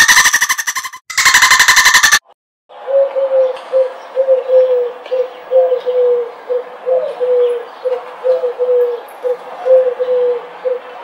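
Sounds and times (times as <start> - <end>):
dove cooing: 2.9 - 11.0.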